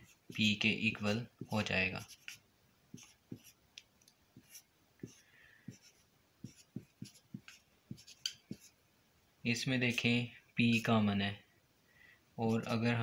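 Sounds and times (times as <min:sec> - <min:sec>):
marker scratching on paper: 0:01.4 - 0:03.6, 0:04.4 - 0:08.8.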